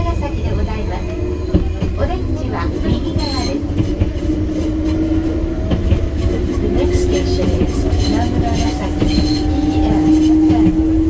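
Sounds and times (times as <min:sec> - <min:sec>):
train rumble and hum: 0:00.0 - 0:11.0
wheels knocking on track: 0:05.6 - 0:11.0.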